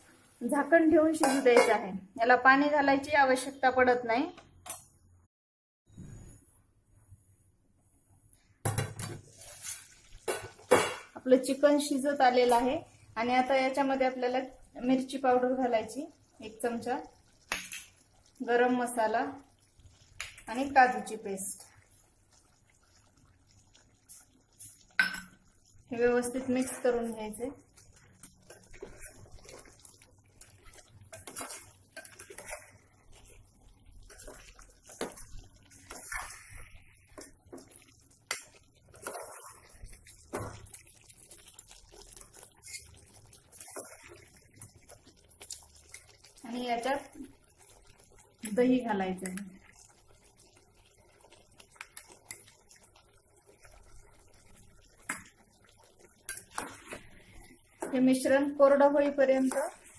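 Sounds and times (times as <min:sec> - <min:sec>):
spoon scraping metal pot: 0:01.2 - 0:01.8, 0:31.1 - 0:32.8, 0:38.3 - 0:40.5, 0:42.6 - 0:44.0.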